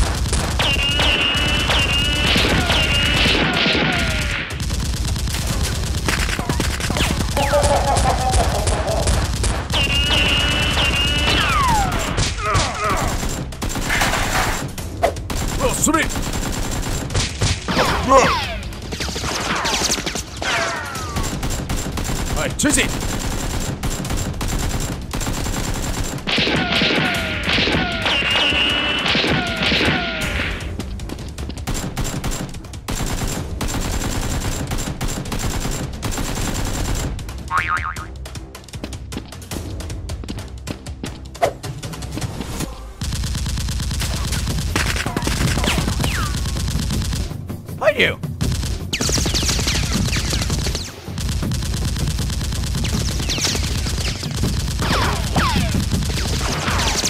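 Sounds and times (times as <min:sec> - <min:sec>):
gunfire sound effects: 0:00.0 - 0:30.8, 0:43.0 - 0:47.4, 0:48.4 - 0:57.0
whistling ricochets: 0:00.6 - 0:03.4, 0:27.8 - 0:30.0
people yelling: 0:01.0 - 0:04.5, 0:09.8 - 0:13.2.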